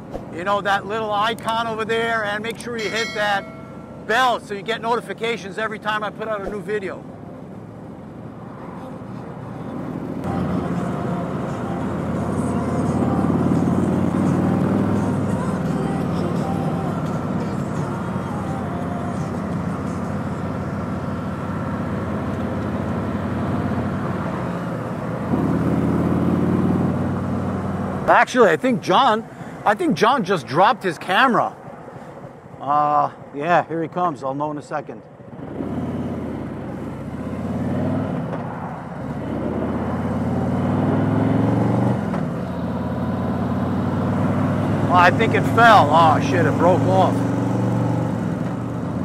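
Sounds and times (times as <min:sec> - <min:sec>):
motorcycle engine accelerating: 0:19.6 - 0:28.1, 0:35.3 - 0:38.4, 0:39.0 - 0:49.0.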